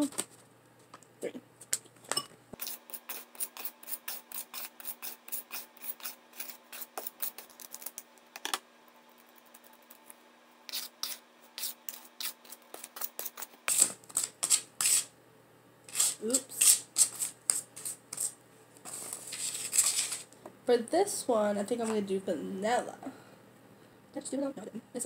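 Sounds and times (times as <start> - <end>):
spoon stirring dry powder: 2.6 - 8.1, 10.7 - 15.1, 15.9 - 20.2.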